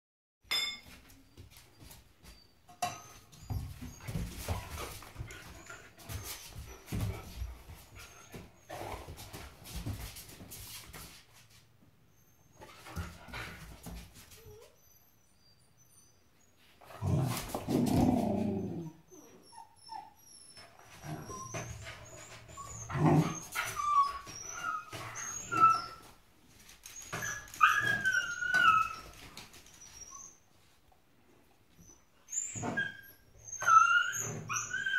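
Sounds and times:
dog whining: 14.3s - 26.2s, 27.0s - 30.4s, 31.8s - 34.9s.

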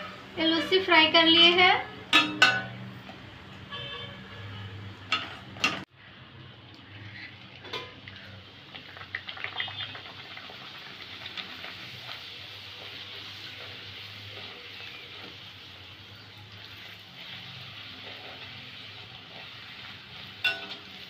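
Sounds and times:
metal spoon clinking on pan: 2.1s - 2.8s, 20.4s - 21.0s
oil sizzling and crackling: 5.0s - 21.0s.

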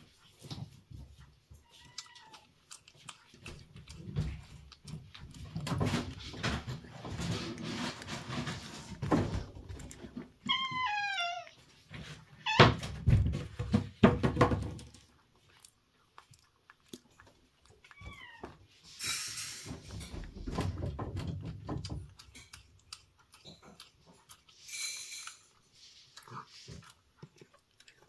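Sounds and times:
cat chewing and lapping: 0.0s - 28.0s
cat meowing: 1.6s - 2.5s, 10.4s - 11.6s, 17.8s - 18.6s.

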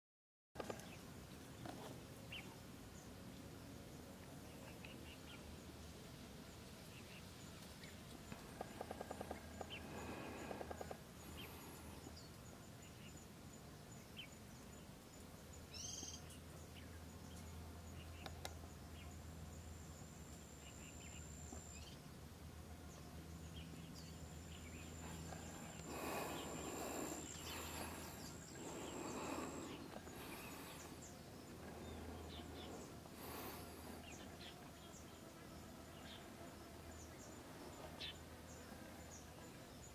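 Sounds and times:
low steady hum: 0.6s - 39.9s
fast run of ticks: 8.3s - 11.0s
bird chirps: 15.7s - 19.2s
high insect-like whine: 24.2s - 34.9s.

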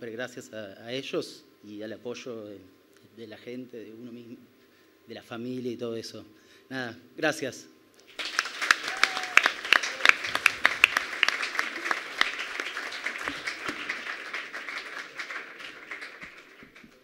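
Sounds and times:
audience applauding: 8.1s - 17.0s.

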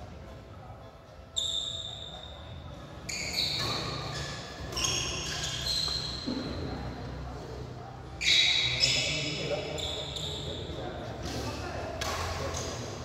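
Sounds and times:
sports shoes squeaking on court: 1.3s - 6.7s, 8.2s - 10.8s.

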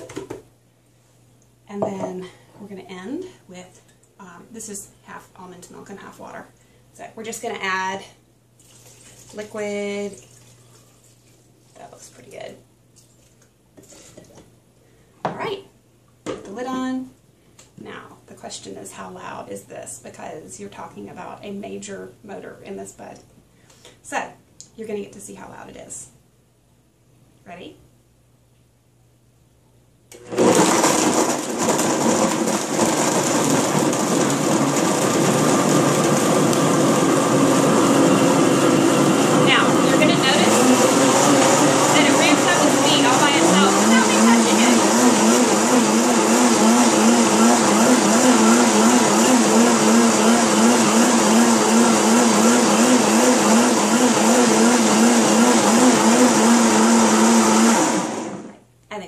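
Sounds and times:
blender blending ice: 30.2s - 58.5s.

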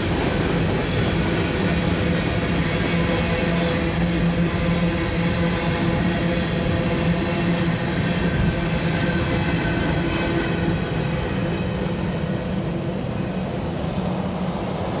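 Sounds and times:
freight train wheels rumbling: 0.0s - 15.0s.

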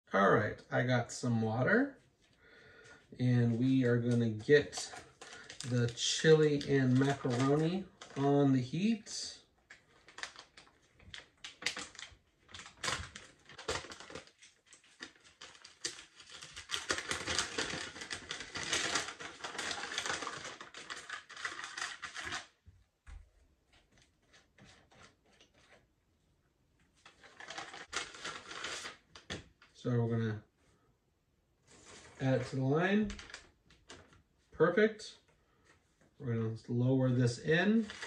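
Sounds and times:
plastic packaging crinkling: 3.4s - 22.6s, 27.0s - 29.7s, 31.8s - 34.2s, 37.7s - 38.0s.

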